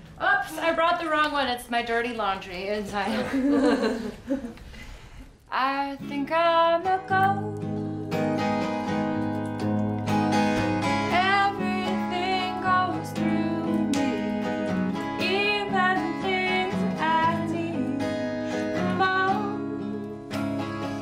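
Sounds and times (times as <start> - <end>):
woman singing: 5.5 - 8.7, 11.0 - 21.0
strummed acoustic guitar: 6.0 - 21.0.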